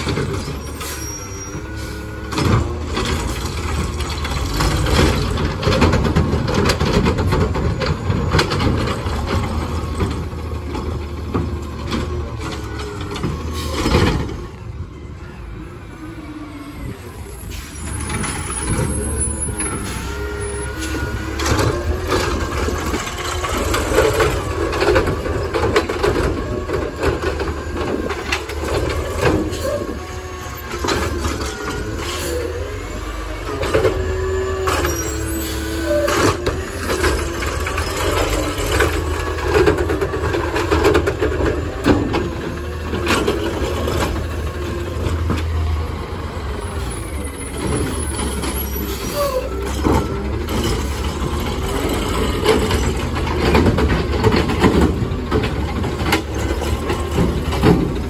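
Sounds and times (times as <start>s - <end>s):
garbage truck running: 0.0s - 58.0s
hydraulic arm lifting carts: 0.0s - 58.0s
air brakes hissing: 17.4s - 18.4s.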